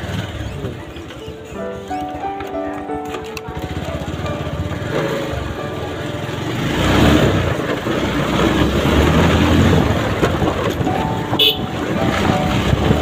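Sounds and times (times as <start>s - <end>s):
motorcycle engine idling: 3.4s - 8.0s.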